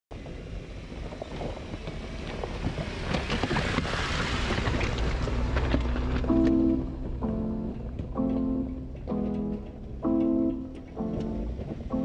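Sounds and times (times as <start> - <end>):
engine low rumble: 0.1 - 12.0
tyres crunching on loose rock: 0.9 - 6.6
music: 6.2 - 12.0.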